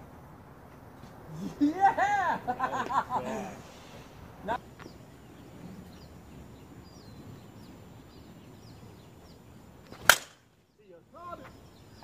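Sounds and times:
bat striking a softball: 9.9 - 10.5.

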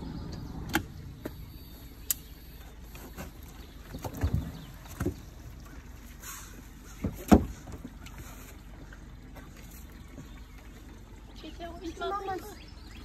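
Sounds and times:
hollow knocks in a boat: 3.0 - 5.4, 7.0 - 8.0.

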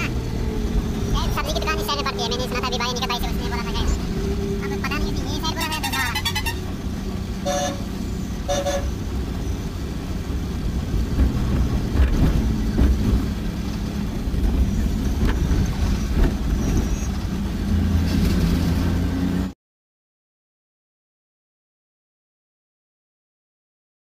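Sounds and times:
diesel truck engine running: 0.0 - 19.5
road noise: 0.0 - 19.6
horn honks: 5.5 - 9.1.

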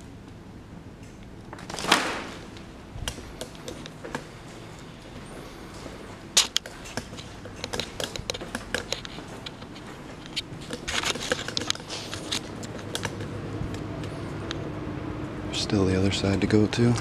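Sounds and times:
footsteps crunching on grit: 5.1 - 12.8.

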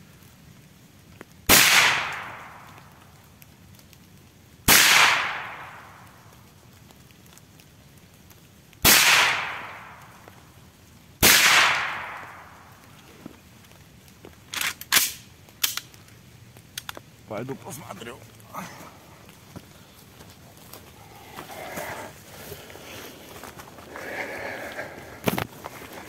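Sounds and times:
suppressed shotgun shots: 1.5 - 2.6, 4.7 - 5.7, 8.8 - 9.8, 11.2 - 12.4.

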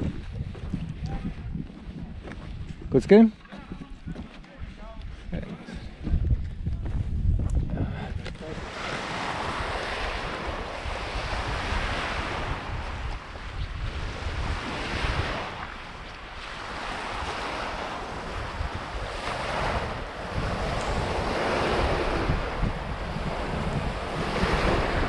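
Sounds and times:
wind rumble on microphone: 0.0 - 25.0
surf washing onto pebbly beach: 8.5 - 25.0.

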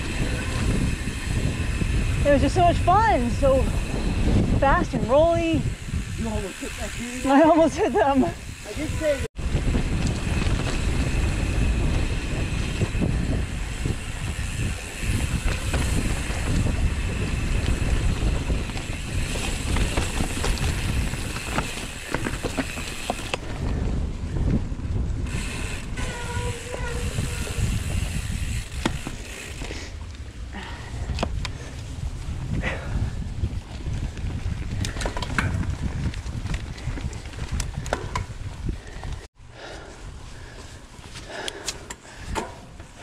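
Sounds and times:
ratcheting freehub buzzing: 0.0 - 23.6, 25.1 - 30.1
bike rattles and clicks: 0.0 - 43.0
tyre and trail rumble: 0.0 - 43.0
wind on microphone: 0.0 - 43.0.

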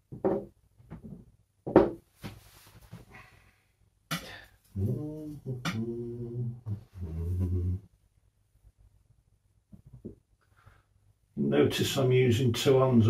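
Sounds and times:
man's wordless singing: 4.8 - 7.8.

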